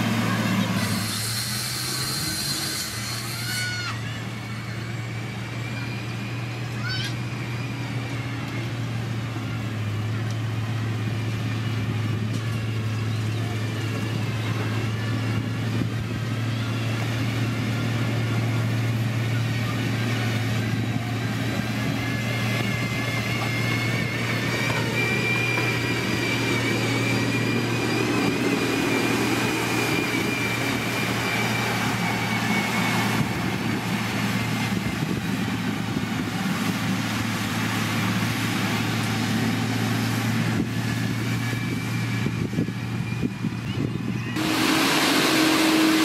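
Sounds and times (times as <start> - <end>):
diesel engine humming: 0.0 - 46.0
faint high whine: 16.3 - 35.2.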